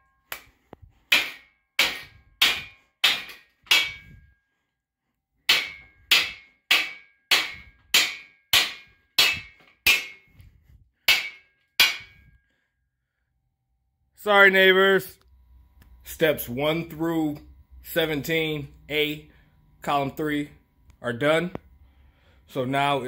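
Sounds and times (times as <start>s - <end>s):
hammer striking metal: 0.3s - 4.3s, 5.5s - 10.4s, 11.0s - 12.4s.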